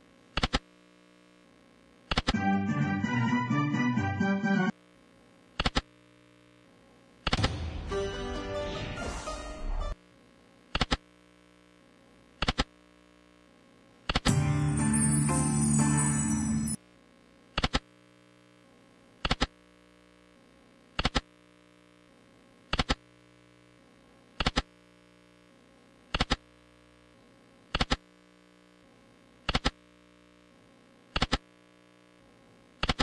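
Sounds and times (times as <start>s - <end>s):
faint steady hum: 0.0s - 2.2s, 4.5s - 7.3s, 9.9s - 32.9s.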